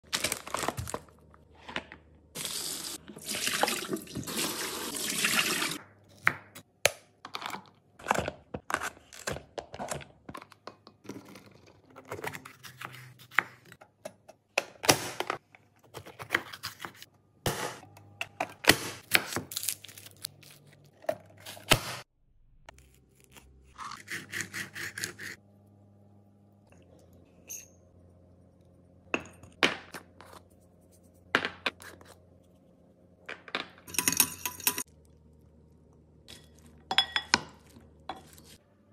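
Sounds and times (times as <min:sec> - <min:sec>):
tap water running: 0:02.4 - 0:05.8.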